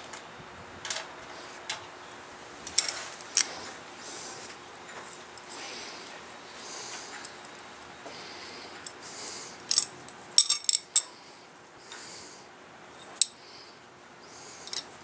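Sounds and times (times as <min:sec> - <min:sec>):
soft breathy hiss: 0:02.9 - 0:09.8, 0:10.9 - 0:15.0
metal washers clinking: 0:09.7 - 0:11.1.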